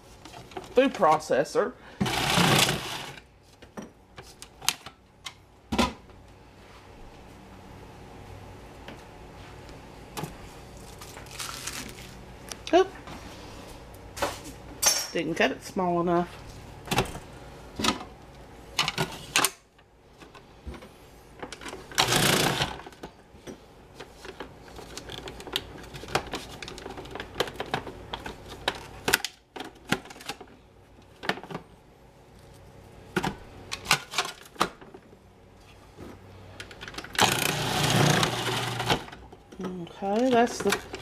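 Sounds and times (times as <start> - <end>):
food processor motor chopping: 2.0 - 3.2, 21.9 - 23.0, 37.1 - 39.2.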